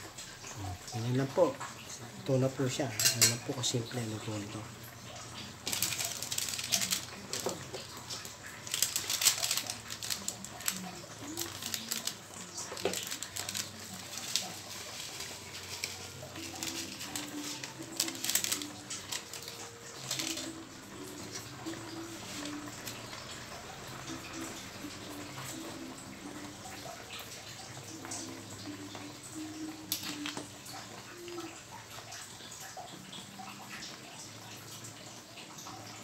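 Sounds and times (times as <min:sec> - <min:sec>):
food simmering in gravy in a wok: 0:20.6 - 0:36.0.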